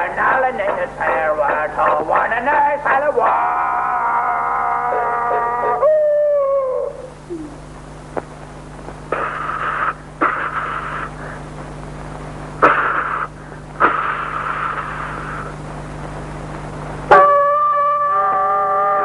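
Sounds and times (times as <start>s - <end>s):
steady hum: 0.0s - 19.0s
loud pitched tone: 17.1s - 19.0s.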